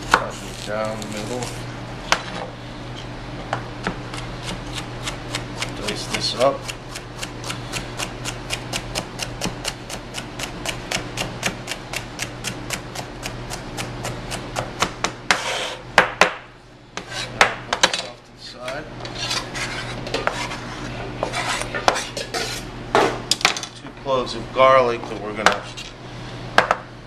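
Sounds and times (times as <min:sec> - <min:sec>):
knife chopping on cutting board: 0:00.0 - 0:00.3, 0:03.8 - 0:16.4, 0:21.2 - 0:23.2
knife blade scraping board: 0:15.3 - 0:15.8, 0:17.0 - 0:17.4, 0:19.0 - 0:22.7.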